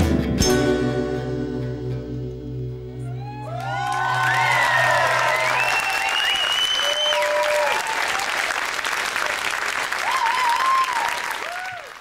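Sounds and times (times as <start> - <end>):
people cheering: 3.0 - 12.0
long high whistle: 3.1 - 7.9
audience applauding: 3.3 - 12.0.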